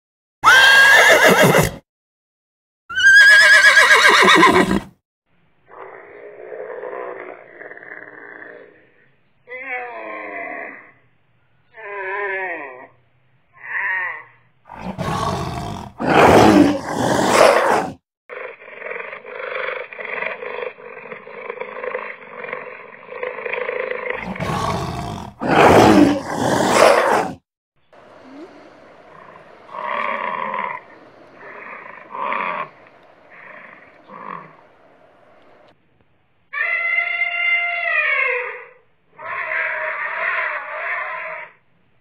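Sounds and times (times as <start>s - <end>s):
animal roaring: 5.7s - 9.0s, 13.6s - 27.4s, 28.1s - 34.7s.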